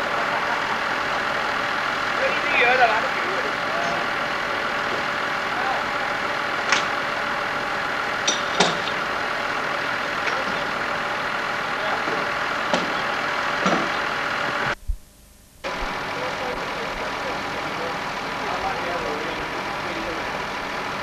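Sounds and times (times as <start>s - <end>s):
heavy vehicle engine idling: 0.0s - 14.8s, 15.6s - 21.0s
sharp knocks: 12.1s - 14.0s.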